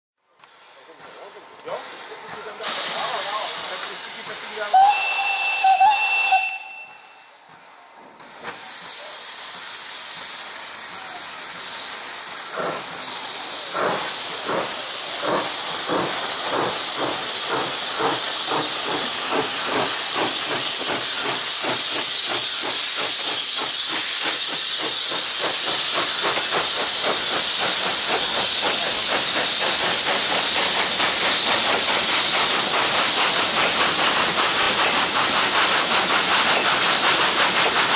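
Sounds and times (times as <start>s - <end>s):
steam hissing: 0.4s - 37.9s
steam locomotive exhaust chuffs: 0.4s - 37.9s
steam locomotive whistle: 4.7s - 7.4s.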